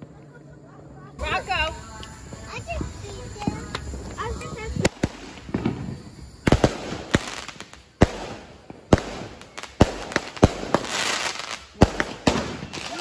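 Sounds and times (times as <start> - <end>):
crackling hiss of fireworks: 0.0 - 13.0
fireworks bangs: 0.0 - 13.0.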